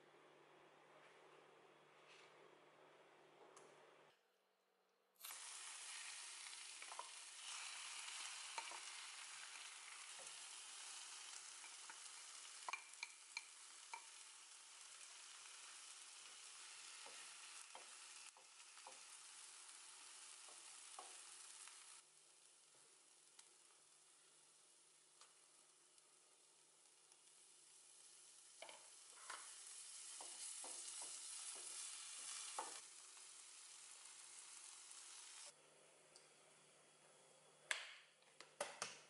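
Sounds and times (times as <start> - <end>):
vegetables sizzling in a frying pan: 5.2 - 35.6
spatula clicking and scraping pan: 8.2 - 9.0, 11.3 - 14.2, 28.6 - 32.8.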